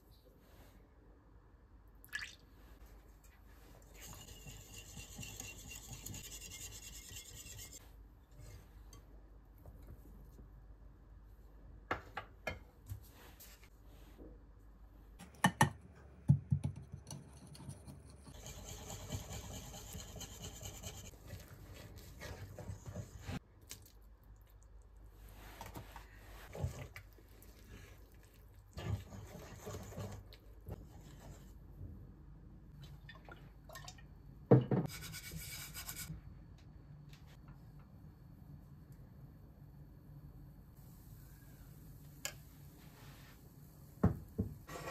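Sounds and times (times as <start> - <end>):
whisk stirring batter: 3.9 - 7.8, 17.4 - 23.4, 28.8 - 31.4.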